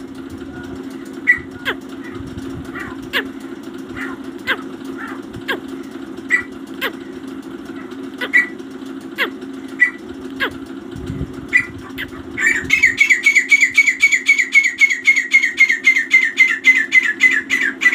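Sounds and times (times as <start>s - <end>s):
steady low hum: 0.0s - 17.9s
francolin calling: 1.1s - 8.6s, 11.5s - 17.9s.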